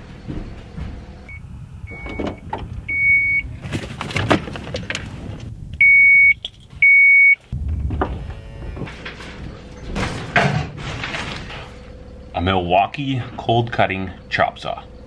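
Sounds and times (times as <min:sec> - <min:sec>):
high-pitched warning beeps: 0:01.3 - 0:03.5, 0:05.8 - 0:07.4.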